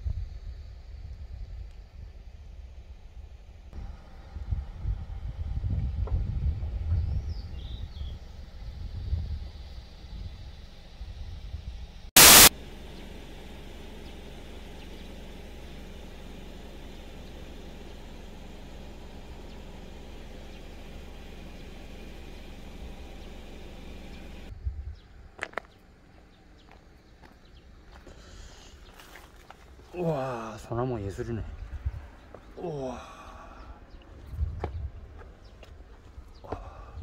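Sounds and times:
steady hiss: 12.2 - 12.5
loud burst of noise: 12.2 - 12.9.

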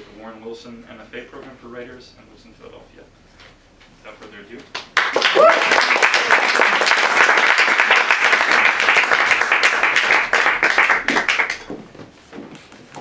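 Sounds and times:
audience applauding: 4.8 - 11.7.

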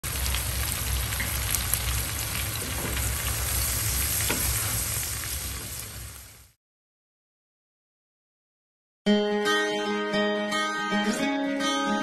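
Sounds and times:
shrimp sizzling in a pan: 0.0 - 6.6.

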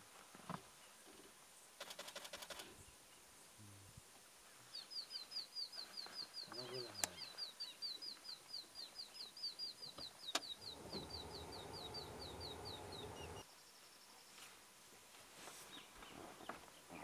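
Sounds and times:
low rumbling noise: 10.6 - 13.4.

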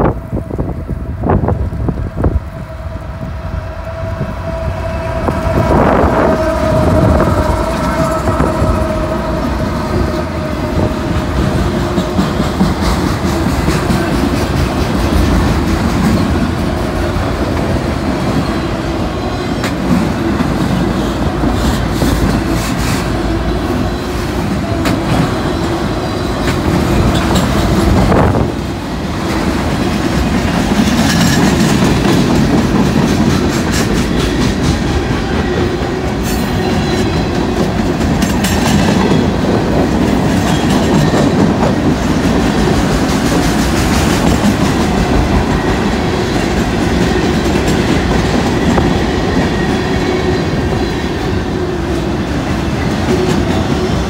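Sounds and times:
steel wheels rumbling on rail: 0.0 - 54.0
wheels clacking over rail joints: 24.2 - 28.2.

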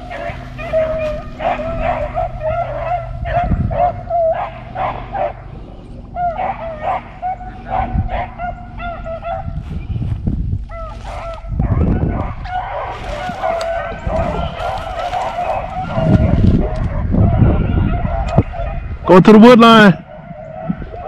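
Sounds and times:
low rumbles: 0.0 - 21.0.

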